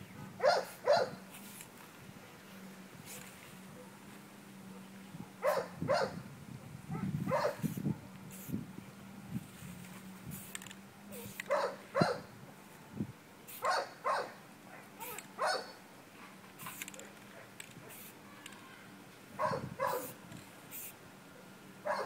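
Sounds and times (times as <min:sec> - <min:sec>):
dog barking: 0:00.4 - 0:01.2, 0:05.4 - 0:06.2, 0:06.9 - 0:07.6, 0:11.5 - 0:12.2, 0:13.6 - 0:15.8, 0:19.4 - 0:20.1
spray paint can hissing: 0:01.2 - 0:01.8, 0:03.0 - 0:03.4, 0:07.6 - 0:08.6, 0:10.2 - 0:11.5, 0:13.5 - 0:13.7, 0:15.0 - 0:15.3, 0:16.6 - 0:18.6, 0:20.0 - 0:21.0.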